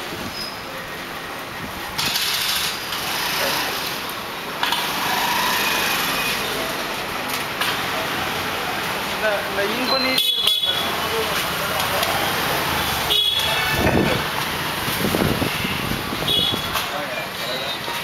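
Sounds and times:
busy street noise: 0.0s - 18.0s
scooter and motorcycle engines passing: 2.0s - 4.0s, 4.6s - 6.8s.

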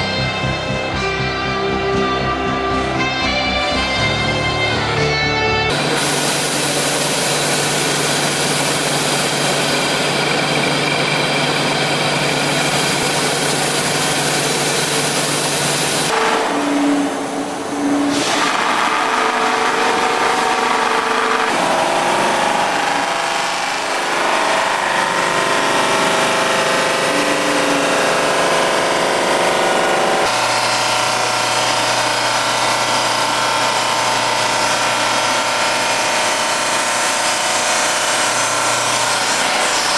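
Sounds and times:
motor hum: 5.7s - 39.9s
buffing wheel hissing on metal: 5.8s - 10.1s.

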